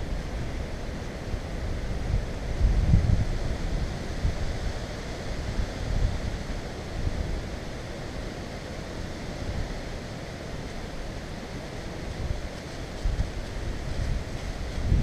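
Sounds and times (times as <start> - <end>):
wind buffeting microphone: 1.3 - 7.6, 12.0 - 15.0.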